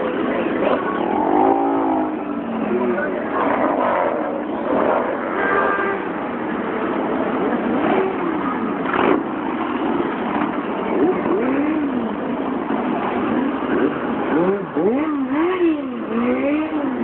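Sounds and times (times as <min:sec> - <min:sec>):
motorcycles revving past: 0:00.2 - 0:06.1, 0:10.9 - 0:12.1, 0:13.6 - 0:17.0.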